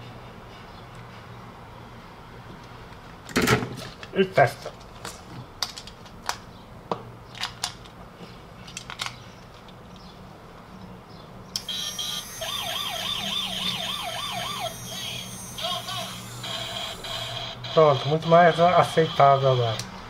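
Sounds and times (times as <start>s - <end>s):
toy electronic police siren: 11.6s - 19.8s.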